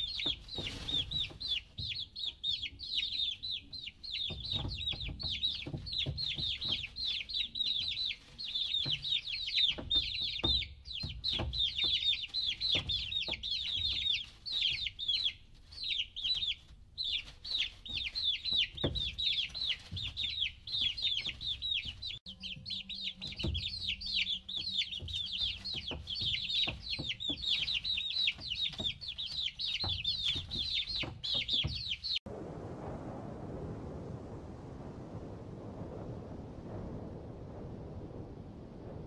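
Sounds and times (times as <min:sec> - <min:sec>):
chicks peeping: 0:00.0 - 0:32.3
low steady rushing: 0:32.3 - 0:39.0.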